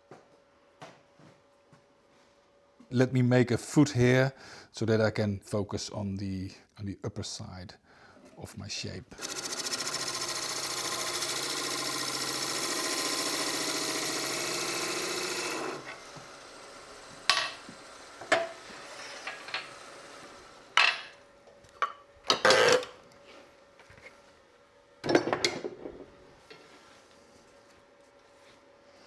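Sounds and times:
wood lathe cutting scrape: 0:09.2 - 0:20.8.

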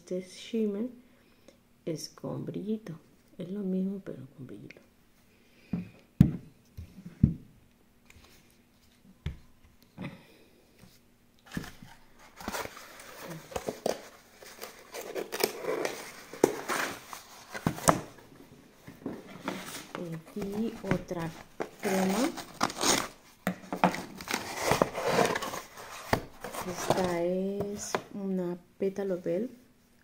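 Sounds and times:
packaging rustling and crinkling: 0:11.4 - 0:28.0.

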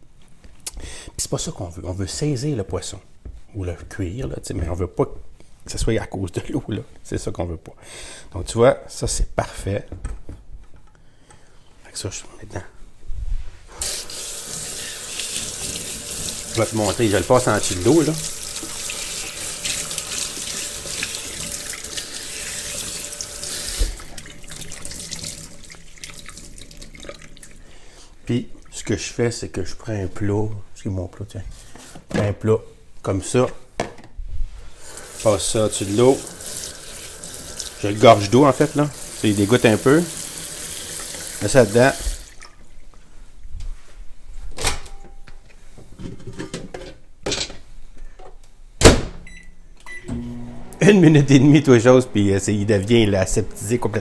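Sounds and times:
faucet running into sink: 0:13.8 - 0:27.6, 0:34.9 - 0:42.6
faucet shutting off thump: 0:23.7 - 0:24.2.

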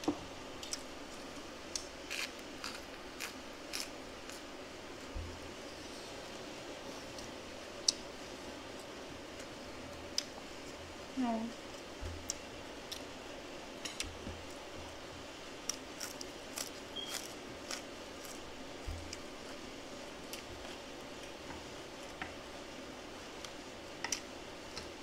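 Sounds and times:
faint steady hum: 0:00.0 - 0:25.0
person chewing: 0:01.7 - 0:04.5, 0:15.6 - 0:19.6.

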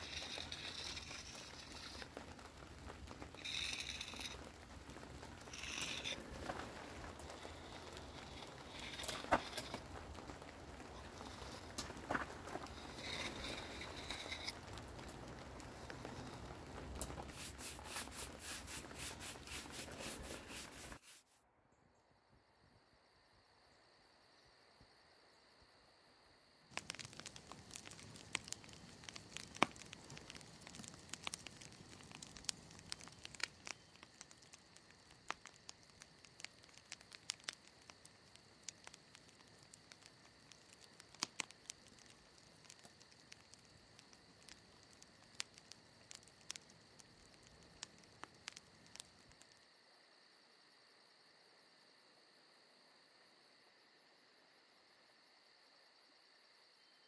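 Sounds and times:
wood fire crackling: 0:00.0 - 0:21.4, 0:26.7 - 0:50.0.

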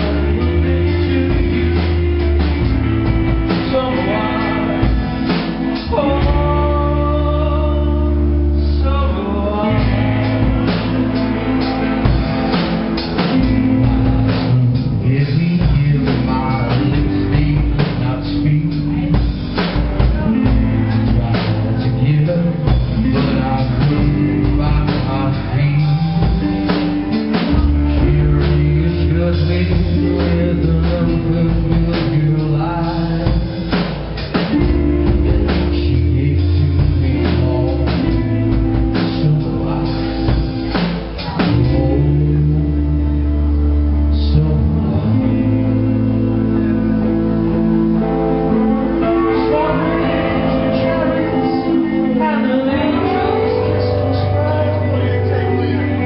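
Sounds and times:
drum kit: 0:00.0 - 0:42.8
bass guitar: 0:00.0 - 0:56.0
electric guitars: 0:00.0 - 0:56.0
man singing into a microphone: 0:00.0 - 0:56.0.

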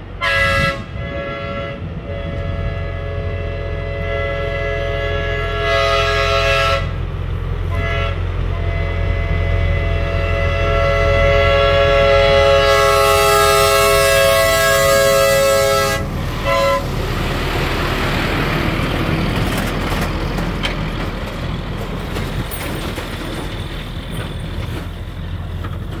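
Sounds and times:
truck engine and tires rumbling: 0:00.0 - 0:26.0
truck train horn chord: 0:00.2 - 0:17.2.

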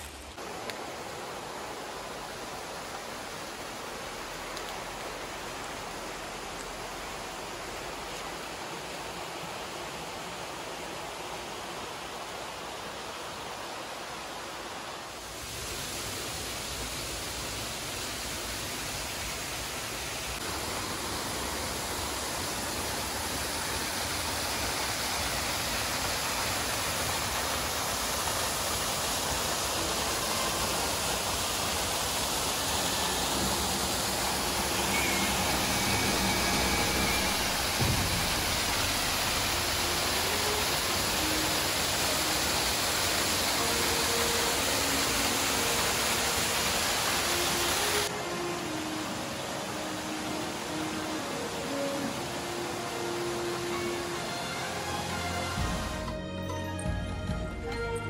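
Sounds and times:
waterfall splashing into pool: 0:13.6 - 0:56.1.

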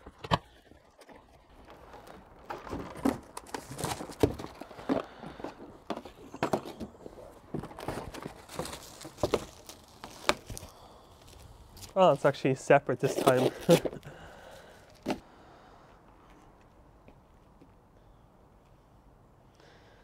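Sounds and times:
packaging rustling: 0:01.0 - 0:12.2, 0:13.0 - 0:15.2
cardboard box knocks and clatters: 0:05.8 - 0:10.6.

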